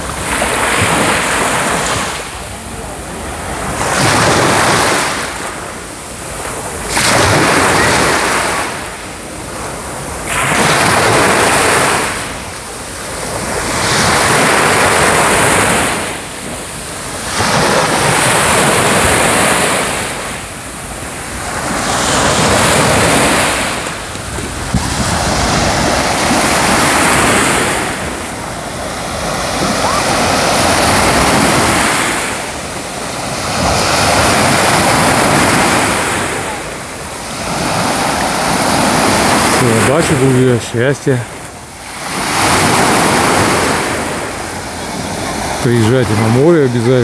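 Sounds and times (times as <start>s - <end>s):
small waves breaking on beach: 0.0s - 47.0s.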